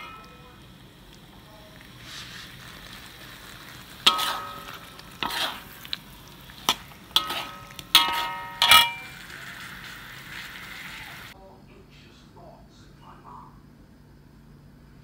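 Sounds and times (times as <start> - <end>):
pan ringing: 0.0 - 0.7, 4.0 - 5.1, 7.1 - 9.3
soft sizzle: 0.0 - 11.4
spatula scraping metal pan: 3.4 - 10.6.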